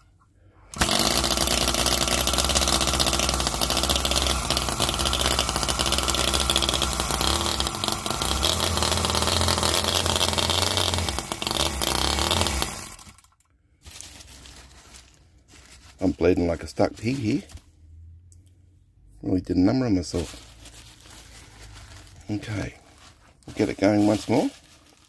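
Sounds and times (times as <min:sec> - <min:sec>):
model petrol engine running: 0:00.7 - 0:13.3.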